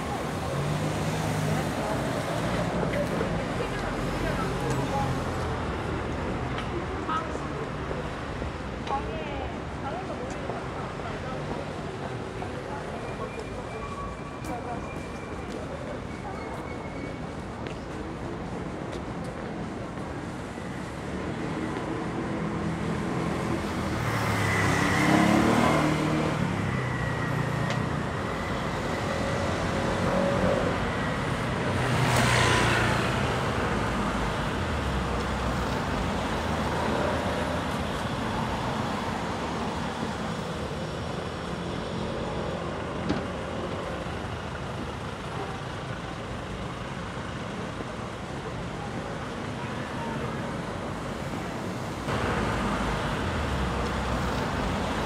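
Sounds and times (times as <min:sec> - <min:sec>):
vehicles passing on road: 0:00.0 - 0:55.0
louder vehicles passing: 0:21.2 - 0:44.4, 0:49.4 - 0:55.0.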